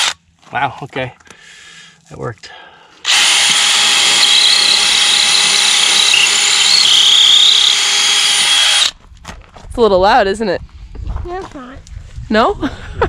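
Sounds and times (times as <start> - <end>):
power drill boring into concrete: 3.0 - 9.0.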